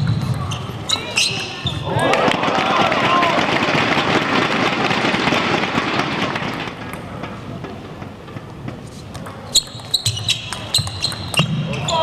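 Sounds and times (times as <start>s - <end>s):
low hall background: 0.0s - 12.0s
spectators clapping: 2.0s - 6.7s.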